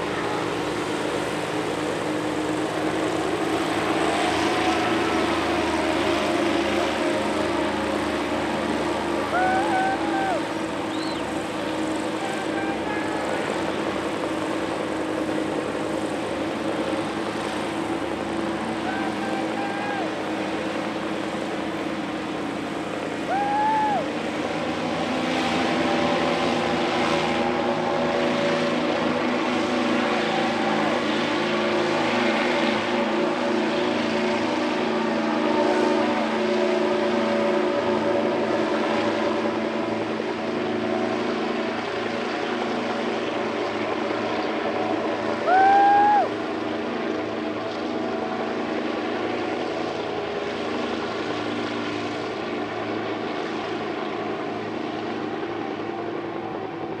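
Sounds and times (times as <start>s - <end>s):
propeller engines droning: 0.0s - 57.0s
rising whistle-like tone: 9.4s - 11.3s.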